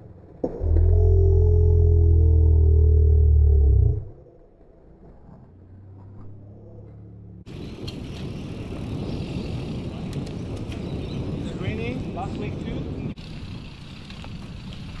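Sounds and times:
bike tyres rolling on asphalt: 0:04.1 - 0:15.0
wind rush on microphone: 0:07.5 - 0:15.0.

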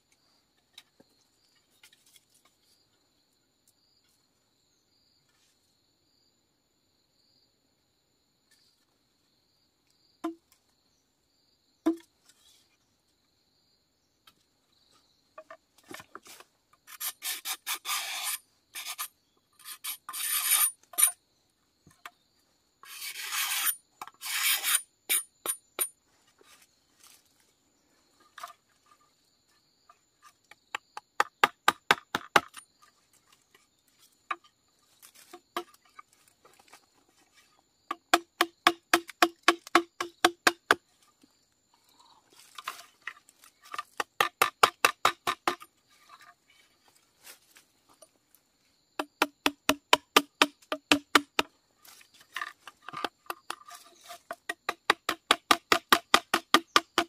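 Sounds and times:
machete tapping on bamboo: 0:10.2 - 0:10.5, 0:11.8 - 0:12.1, 0:30.7 - 0:32.6, 0:37.9 - 0:40.8, 0:43.7 - 0:45.6, 0:49.0 - 0:51.5, 0:54.3 - 0:57.0
machete scraping bamboo: 0:15.8 - 0:21.2, 0:22.8 - 0:27.3, 0:31.9 - 0:40.8, 0:42.4 - 0:47.6, 0:50.0 - 0:57.0.

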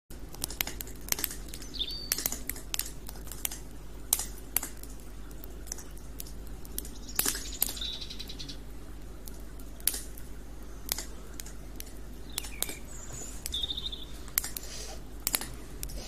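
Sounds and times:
campfire crackling: 0:00.1 - 0:16.0
sharp pops of fire: 0:00.1 - 0:16.0
small bird chirping: 0:01.5 - 0:02.3, 0:06.8 - 0:08.7, 0:12.2 - 0:14.3.

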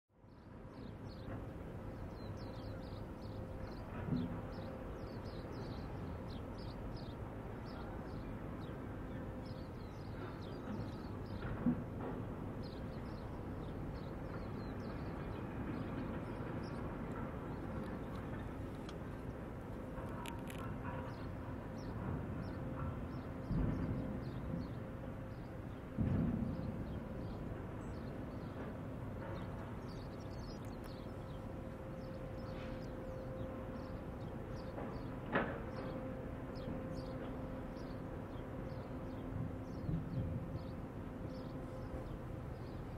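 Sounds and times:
small birds chirping: 0:29.4 - 0:33.2.

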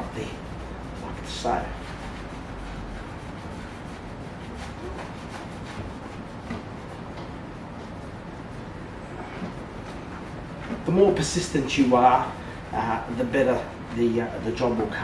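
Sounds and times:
steady background hiss: 0:00.0 - 0:15.0.

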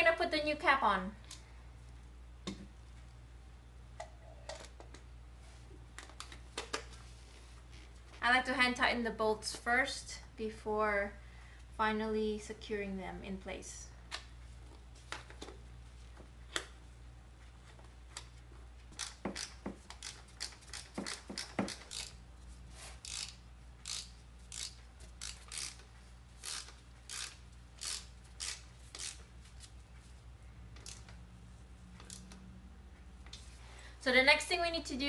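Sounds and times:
ratchet clicking: 0:19.0 - 0:22.2, 0:23.0 - 0:29.2.

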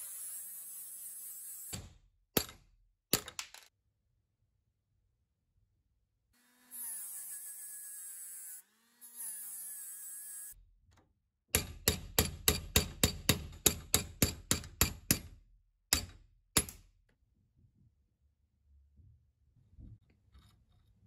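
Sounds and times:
hammer striking metal punch: 0:11.5 - 0:15.3.

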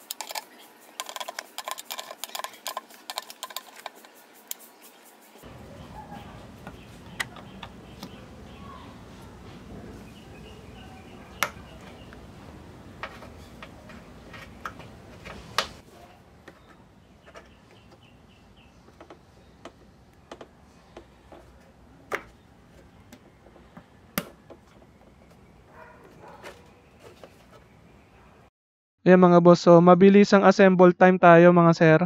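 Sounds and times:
low background hum: 0:05.4 - 0:28.5.

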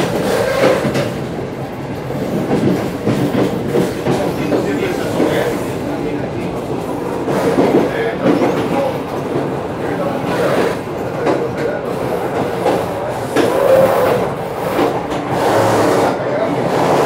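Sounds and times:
train wheels rumbling on rails: 0:00.0 - 0:17.0
track knocks: 0:02.0 - 0:05.6.

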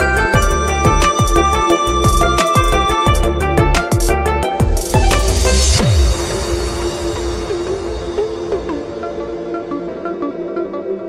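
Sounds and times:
electronic music with kick-drum beat: 0:00.0 - 0:11.0.

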